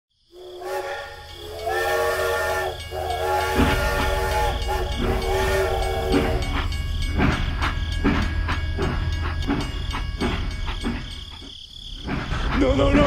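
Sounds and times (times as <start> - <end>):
toy steam train whistle: 0.3 - 7.3
low rumble of train running: 0.4 - 13.0.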